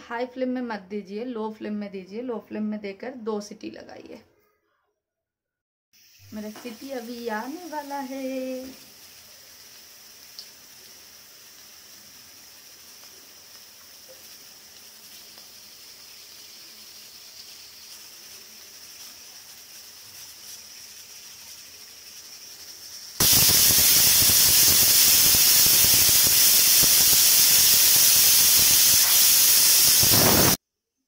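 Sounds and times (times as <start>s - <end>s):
faint steam hiss: 6.0s - 30.6s
pressure cooker steam jet: 6.0s - 30.6s.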